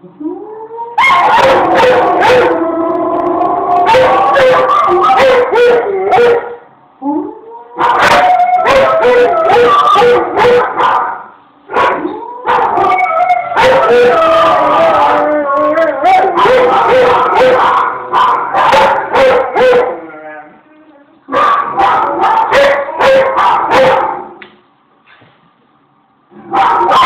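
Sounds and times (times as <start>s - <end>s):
dog howling: 0.2s - 10.8s, 11.8s - 20.6s, 26.5s - 27.0s.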